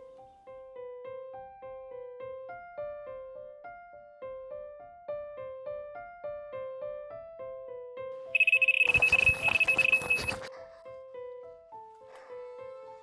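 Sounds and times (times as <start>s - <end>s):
gentle piano music: 0.0s - 8.2s
high electronic alarm tone: 8.4s - 10.5s
rapid crackling clatter: 8.4s - 10.7s.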